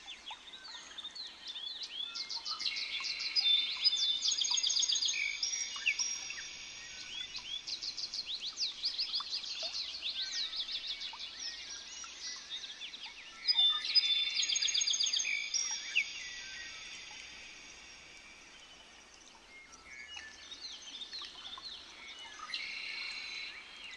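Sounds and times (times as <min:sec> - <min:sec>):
soft bird chirps: 0:00.0 - 0:23.9.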